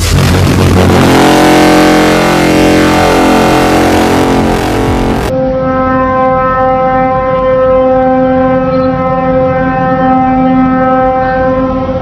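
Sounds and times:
rough background rush: 0.0s - 5.3s
ship horn long blast: 0.0s - 12.0s.

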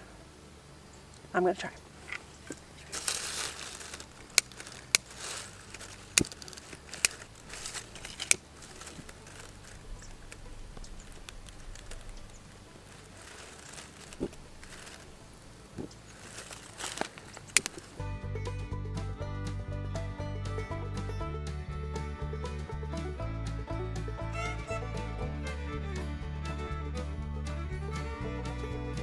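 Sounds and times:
dry leaves and kindling rustling: 1.0s - 18.0s
sharp clicks: 15.8s - 18.0s.

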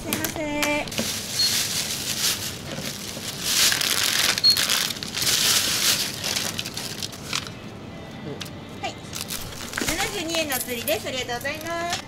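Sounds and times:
plastic bags rustling: 0.0s - 7.6s, 9.1s - 11.9s
checkout scanner beep: 1.3s - 1.7s, 4.4s - 4.8s.

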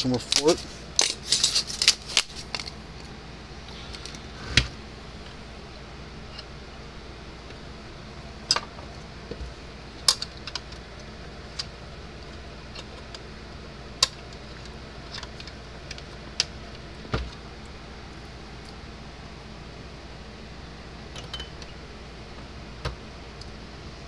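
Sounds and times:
steady low hum: 0.0s - 24.0s
hands handling plastic parts: 0.1s - 3.1s.

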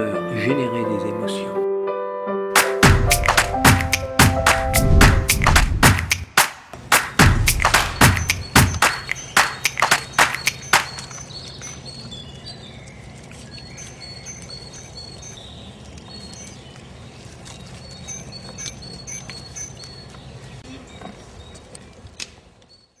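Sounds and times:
birds chirping: 7.0s - 23.0s.

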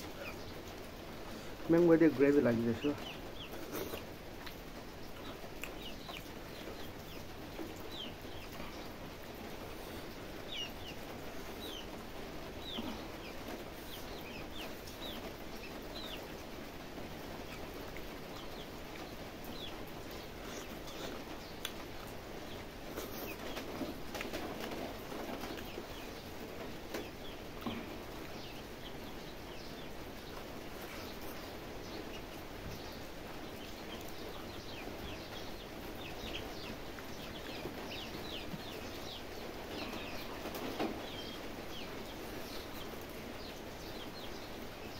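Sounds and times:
small birds chirping: 0.0s - 44.9s
chewing: 3.4s - 6.3s, 20.1s - 22.2s, 22.9s - 24.8s.

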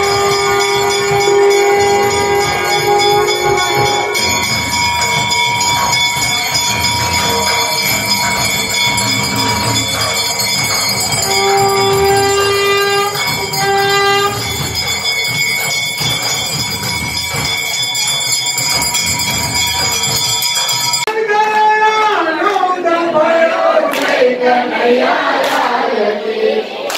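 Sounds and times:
held pitched note: 0.0s - 21.1s
bells ringing and clanging: 0.0s - 21.2s.

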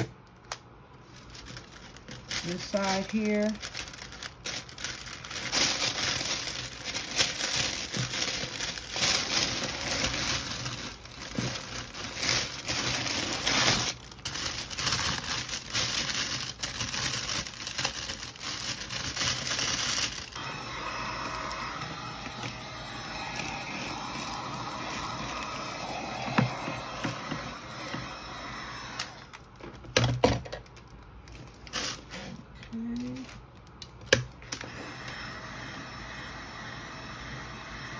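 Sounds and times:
cellophane crinkling: 0.2s - 20.4s, 29.2s - 34.0s.

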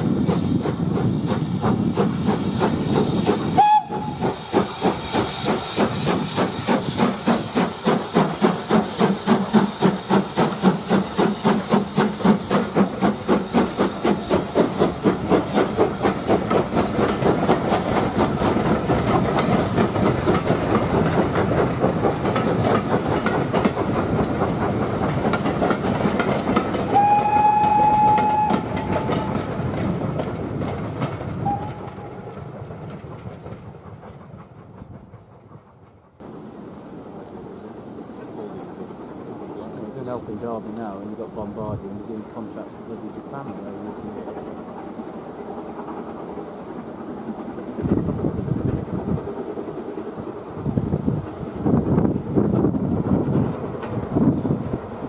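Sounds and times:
steam locomotive exhaust beats: 0.0s - 55.0s
steam whistle: 3.5s - 4.4s, 26.9s - 29.4s, 31.4s - 32.0s
coaches clattering over rail joints: 10.1s - 26.9s.

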